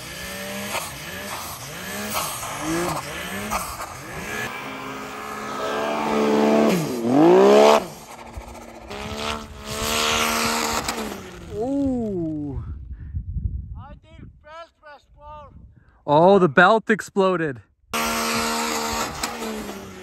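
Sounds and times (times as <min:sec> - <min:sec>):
snowmobile engine revving: 0:00.0 - 0:12.5, 0:17.9 - 0:20.0.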